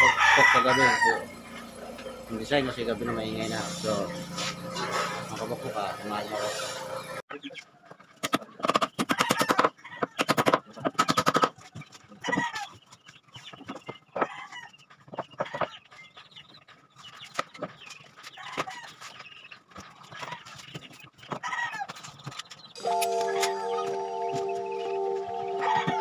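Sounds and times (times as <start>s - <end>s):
rooster crowing: 0.0s - 1.4s, 25.4s - 26.0s
chicken clucking: 6.1s - 22.7s, 24.1s - 26.0s.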